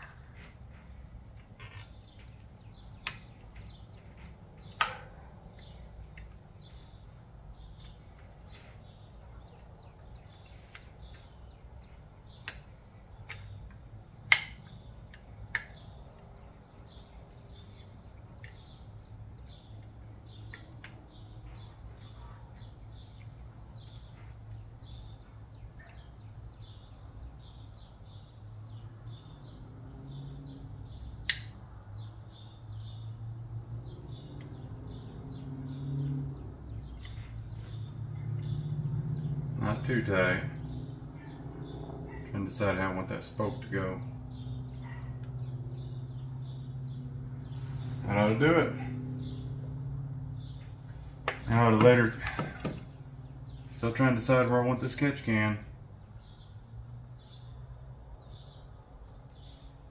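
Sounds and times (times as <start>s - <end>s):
small birds chirping: 0.0s - 59.9s
sharp metallic clicks: 1.4s - 6.5s, 12.4s - 16.3s, 31.2s - 31.6s.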